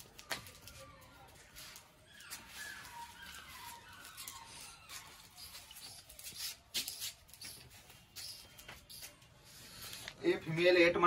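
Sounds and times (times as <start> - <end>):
dog claws clicking on concrete: 5.4 - 9.2.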